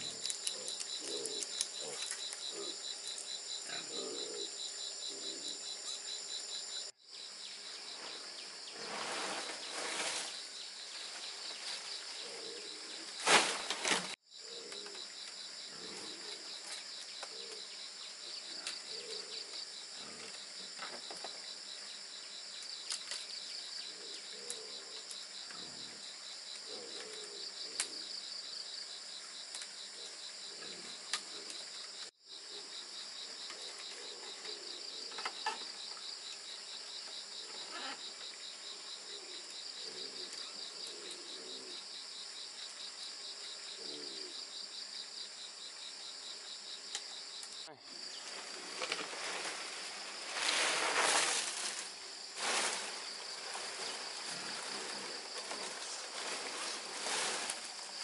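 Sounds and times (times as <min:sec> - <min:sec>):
dry palm leaves rustling: 0:08.8 - 0:12.2, 0:13.2 - 0:14.2, 0:48.2 - 0:58.0
high-pitched insect trill: 0:14.2 - 0:48.4.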